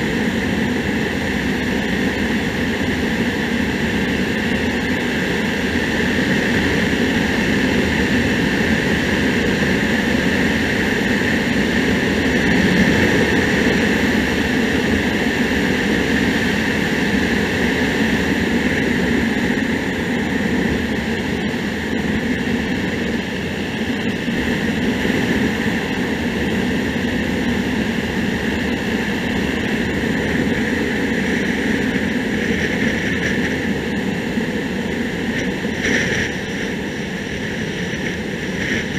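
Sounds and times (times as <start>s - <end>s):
motorcycle engine drone: 0.0s - 38.9s
wind and road rush: 0.0s - 38.9s.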